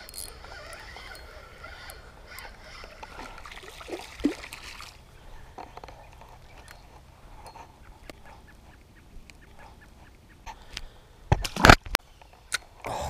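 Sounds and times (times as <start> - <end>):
water splashing and trickling: 2.6 - 5.2.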